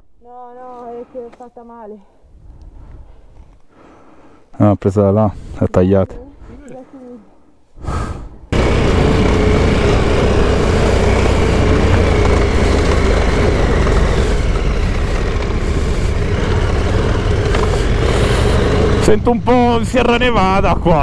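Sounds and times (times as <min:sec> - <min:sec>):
motorcycle engine drone: 0:08.5 - 0:21.0.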